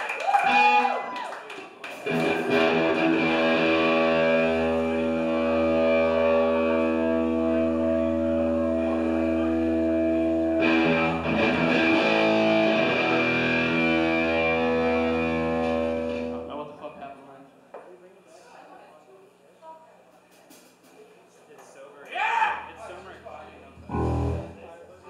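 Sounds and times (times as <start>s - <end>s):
distorted electric guitar chord: 2.1s - 16.5s, 23.8s - 24.6s.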